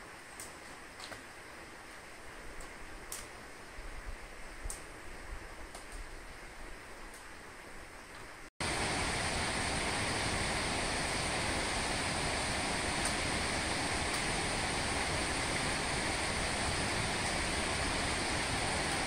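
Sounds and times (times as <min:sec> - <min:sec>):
stream water rushing: 0:08.6 - 0:19.0.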